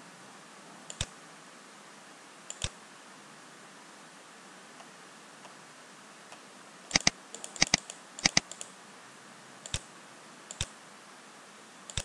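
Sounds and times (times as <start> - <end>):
faint room hiss: 0.0 - 12.0
computer mouse button clicks: 6.9 - 8.6.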